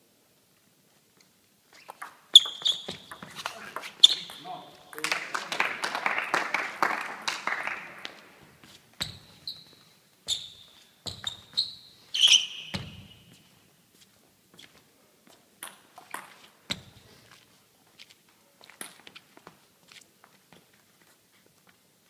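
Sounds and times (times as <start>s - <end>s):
table tennis ball bouncing: 1.9s - 5.1s.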